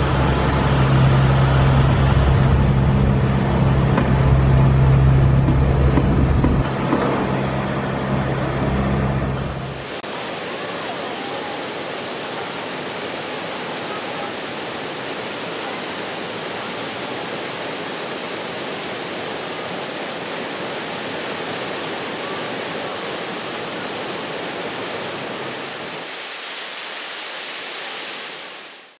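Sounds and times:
waterfall pouring over rocks: 0:09.6 - 0:28.9.

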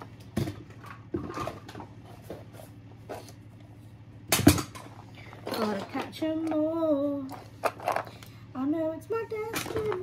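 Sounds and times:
plastic toys clicking and knocking: 0:07.3 - 0:08.3.

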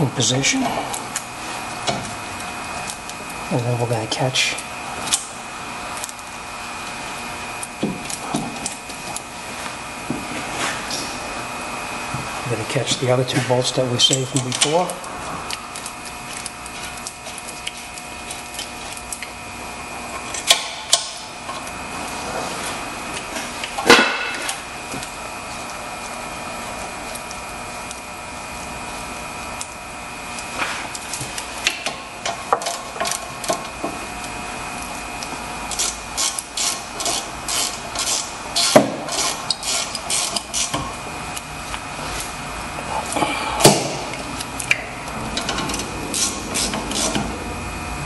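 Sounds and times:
steady background hum: 0:00.0 - 0:48.0
ratchet wrench clicking: 0:35.7 - 0:40.8.

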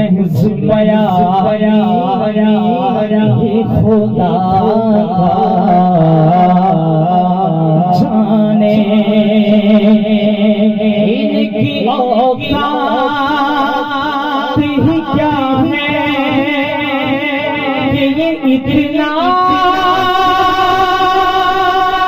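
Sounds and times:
man singing into a microphone: 0:00.0 - 0:22.0.

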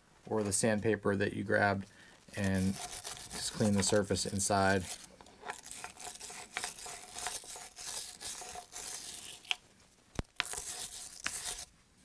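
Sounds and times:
wire brush scrubbing metal: 0:02.3 - 0:09.5.

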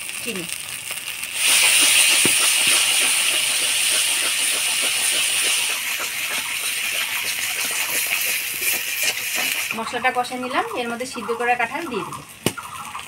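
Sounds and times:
sauce sizzling in a pan: 0:00.0 - 0:13.0
spatula scraping a pan: 0:01.4 - 0:09.8.

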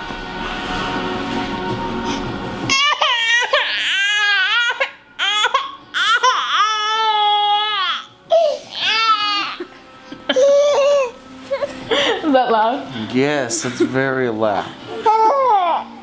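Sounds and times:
baby crying: 0:02.7 - 0:12.1, 0:14.9 - 0:16.0.

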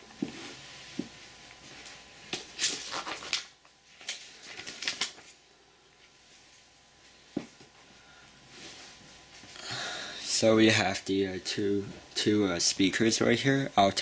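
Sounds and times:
paper and plastic sheet rustling: 0:02.6 - 0:05.4.

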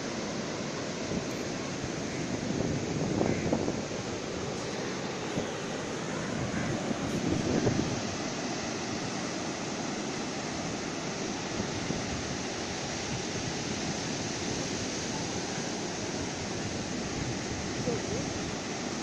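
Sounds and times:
surf breaking on a beach: 0:00.0 - 0:19.0
wind on the microphone: 0:01.1 - 0:05.6, 0:06.2 - 0:08.4.

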